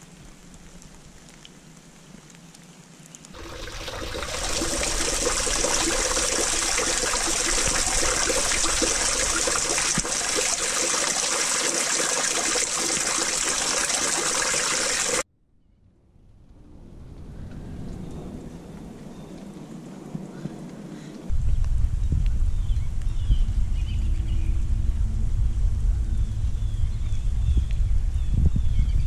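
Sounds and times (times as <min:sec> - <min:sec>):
rainwater trickling into drain: 0:02.5 - 0:15.2.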